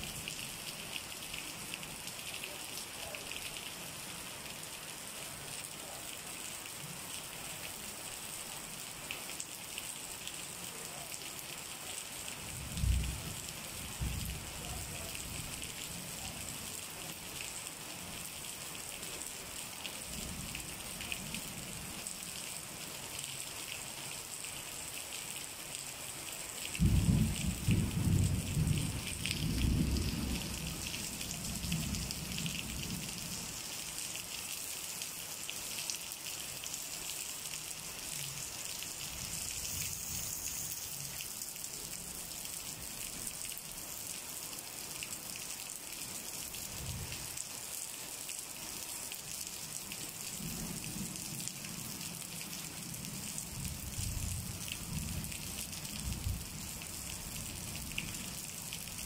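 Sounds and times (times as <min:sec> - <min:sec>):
rain hissing: 0:00.0 - 0:59.0
thunder rumbling: 0:26.8 - 0:30.9.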